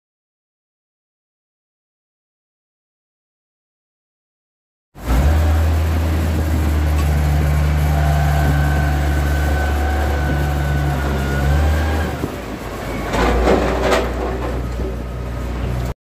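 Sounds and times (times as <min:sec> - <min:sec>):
diesel engine droning with whine: 0:05.0 - 0:16.0.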